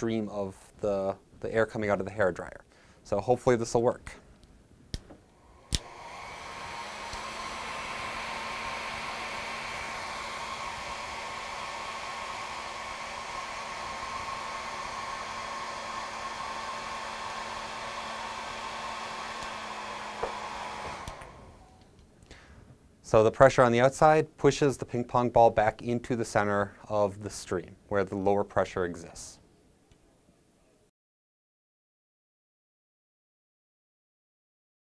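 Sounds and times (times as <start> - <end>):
hair dryer blowing: 5.3 - 21.8
hair dryer switch click: 5.6 - 7.6, 19.2 - 21.4.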